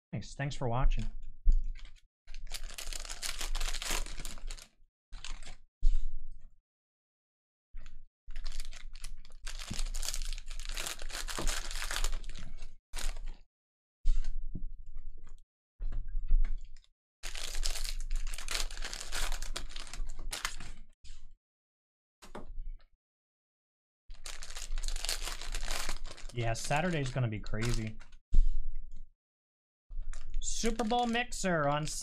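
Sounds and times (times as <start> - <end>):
plastic wrappers crinkling and tearing: 1.8 - 5.6, 8.3 - 13.4, 17.2 - 20.8, 24.1 - 28.1, 30.1 - 32.0.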